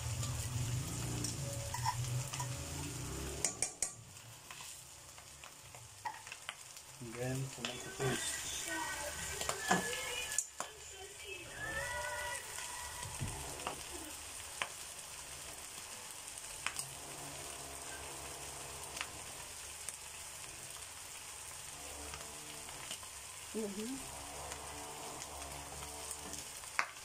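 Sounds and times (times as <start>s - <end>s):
meat sizzling in a pan: 0.0s - 27.0s
utensil clicking against pan: 3.4s - 4.0s.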